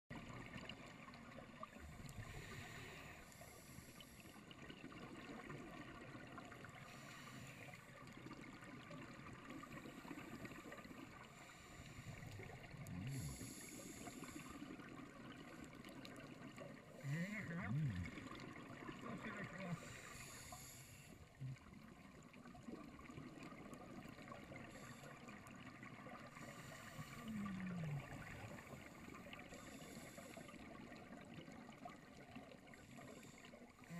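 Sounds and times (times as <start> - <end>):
diver breathing through regulator: 2.0 - 4.5, 6.8 - 7.9, 11.3 - 14.7, 19.7 - 21.2, 26.3 - 30.6
exhaled bubbles burbling: 12.4 - 19.9, 21.2 - 29.8.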